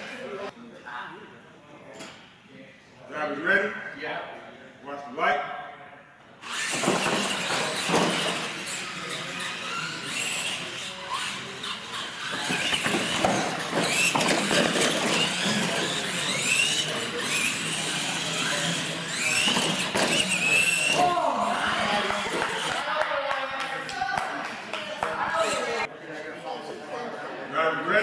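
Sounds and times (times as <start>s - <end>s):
tyres squealing: 6.4s - 22.7s
electric motors whining: 6.4s - 22.8s
toy trucks knocking on landings: 12.3s - 20.8s.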